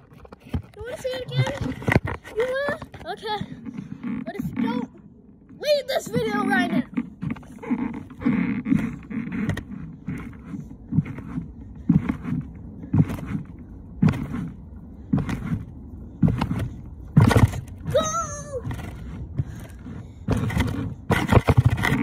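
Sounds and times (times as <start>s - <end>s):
trampoline mat thumping: 10.9s - 18.7s.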